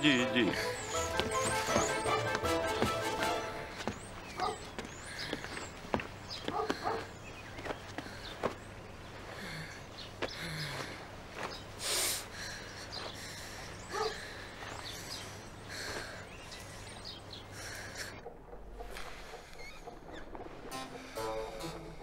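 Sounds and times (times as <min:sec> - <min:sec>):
bird chirps: 0:00.0 - 0:02.3, 0:16.2 - 0:22.0.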